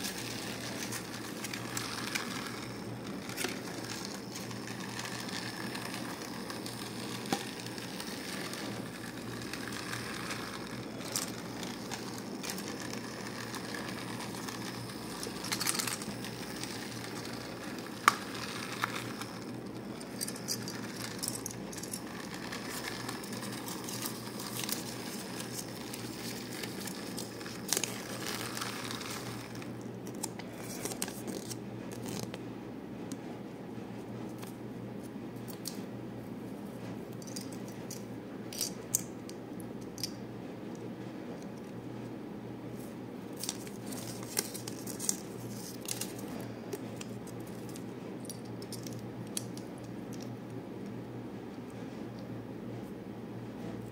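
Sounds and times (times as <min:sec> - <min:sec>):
paper and wrapper crinkling: 0:00.0 - 0:32.4, 0:43.4 - 0:47.9.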